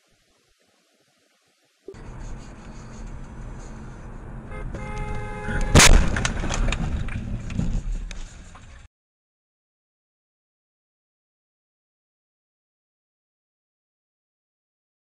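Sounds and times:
steady road noise: 1.9 - 8.9
car horn blaring: 4.3 - 5.9
loud car crash: 5.5 - 8.9
debris clattering: 5.7 - 8.9.

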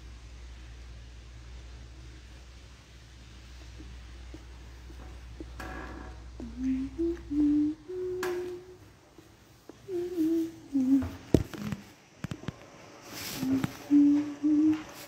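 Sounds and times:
person humming: 6.4 - 8.9, 9.7 - 11.9, 13.4 - 15.0.

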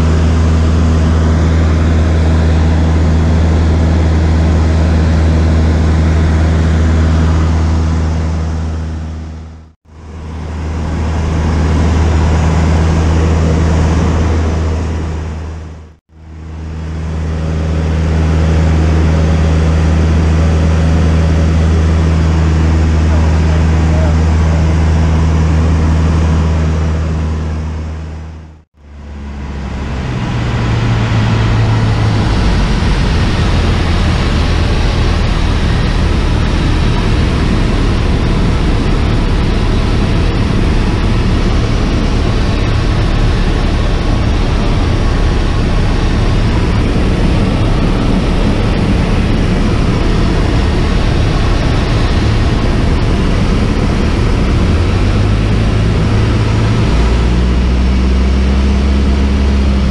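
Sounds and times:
airplane engine and propeller droning: 0.0 - 59.9.

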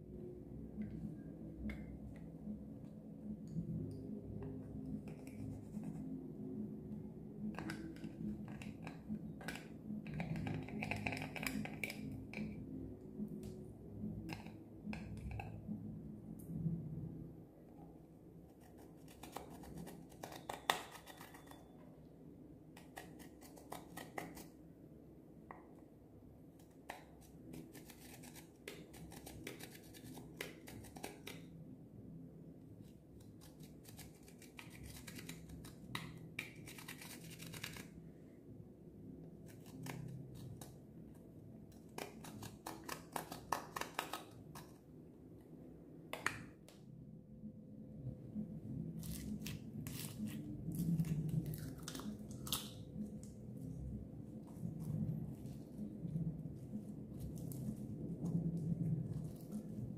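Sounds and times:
metal tool scratching eyeshadow: 18.6 - 21.8, 27.2 - 31.4.

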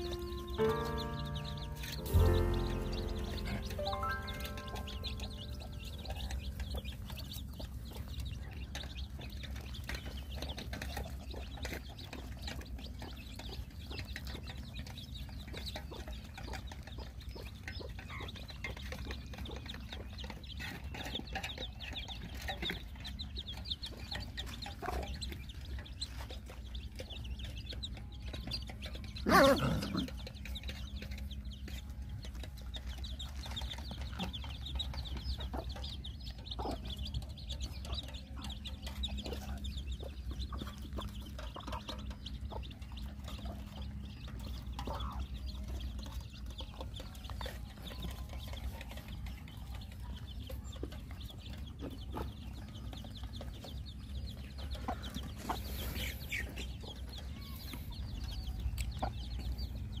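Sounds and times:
chickens clucking: 0.0 - 60.0.

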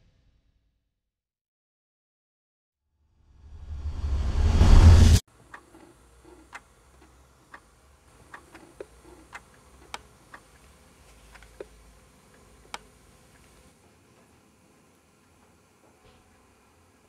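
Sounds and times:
alarm clock ticking: 7.5 - 10.5.

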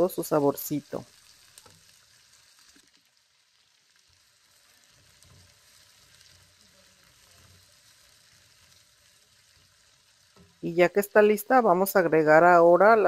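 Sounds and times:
onion sizzling in oil: 0.0 - 13.0
spoon stirring in wok: 4.3 - 10.6.

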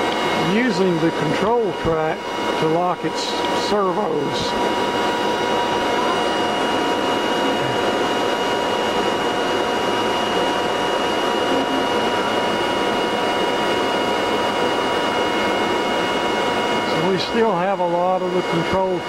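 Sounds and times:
videotape machine running: 0.0 - 19.0
high-pitched tones: 11.3 - 12.5.

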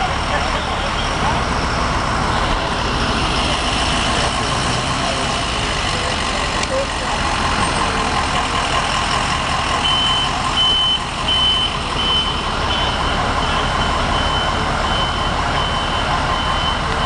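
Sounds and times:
engine running: 0.0 - 17.0
reversing alarm beeping: 9.1 - 17.0.

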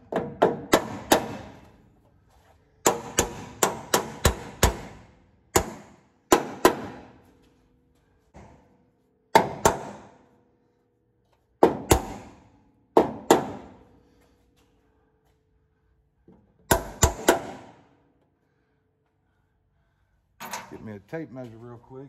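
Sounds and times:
hammer striking sheet metal: 16.7 - 17.8.

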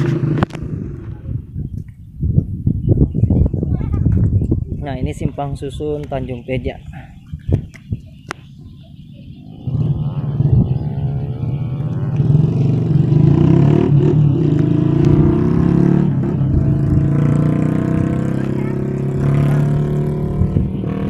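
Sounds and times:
motorcycle engine accelerating: 0.0 - 1.5, 7.9 - 21.0.

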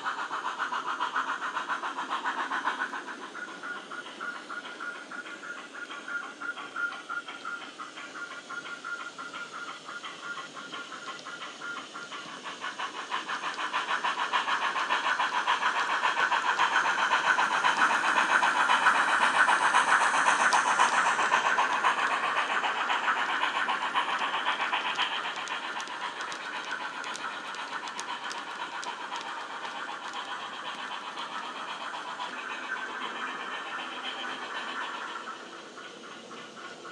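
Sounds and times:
model steam locomotive chuffs: 0.0 - 36.9.

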